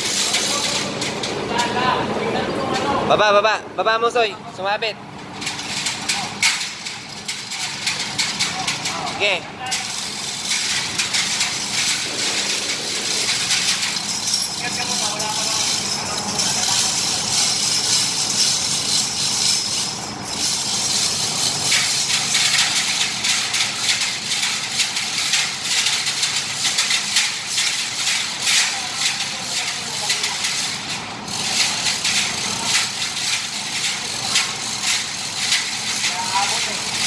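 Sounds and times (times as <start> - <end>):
metallic rattling of hoisting gear: 0.0 - 1.8, 5.2 - 37.0
steady high hiss: 10.0 - 15.9.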